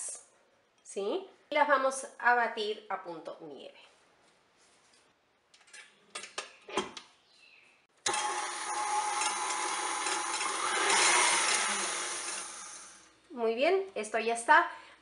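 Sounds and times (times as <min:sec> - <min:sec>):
stand mixer motor whisking: 0:08.1 - 0:13.0.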